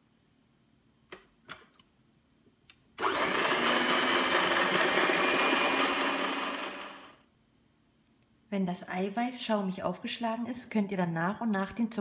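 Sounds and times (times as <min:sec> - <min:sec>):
electric hand mixer whirring: 0:03.0 - 0:07.2.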